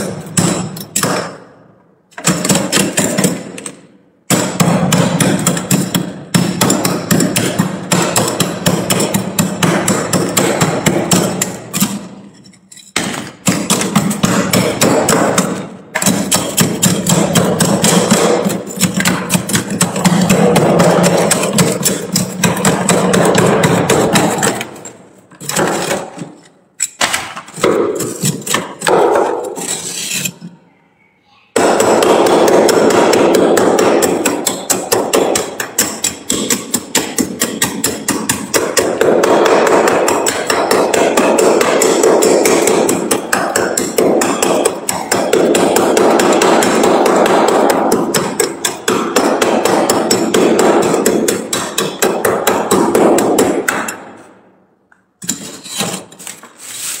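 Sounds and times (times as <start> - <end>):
metal spoon scraping frost: 11.6 - 13.0, 28.0 - 28.8, 29.4 - 30.6, 55.2 - 57.0.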